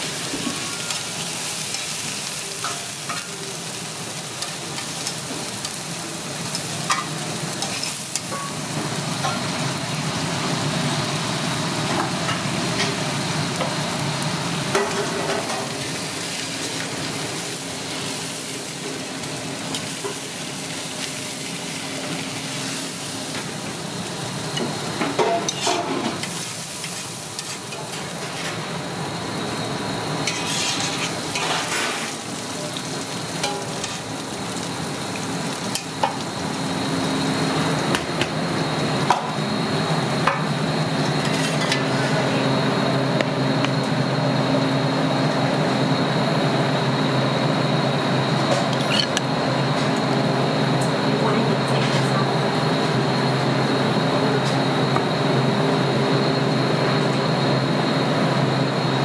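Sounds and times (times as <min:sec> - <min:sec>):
steak and onions sizzling on griddle: 0:00.0 - 0:43.2
metal spatula scraping griddle: 0:25.2 - 0:28.6, 0:30.2 - 0:32.2, 0:41.2 - 0:42.1.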